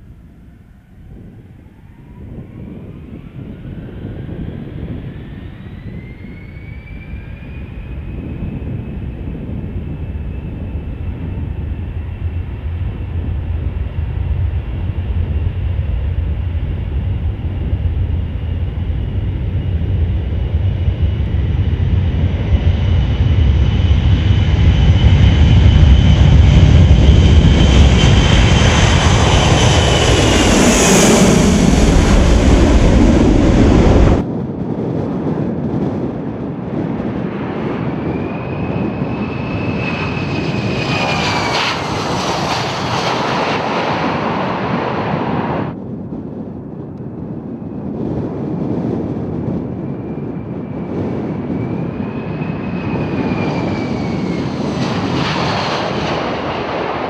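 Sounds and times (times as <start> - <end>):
high engine whine: 0.0 - 34.5, 37.5 - 45.8
jet engines roaring: 0.0 - 57.0.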